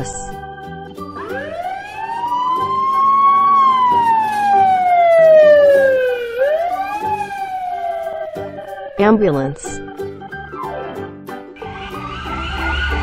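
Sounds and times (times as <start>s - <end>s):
background music: 0.0s - 13.0s
emergency siren wailing: 1.0s - 9.0s, 11.6s - 13.0s.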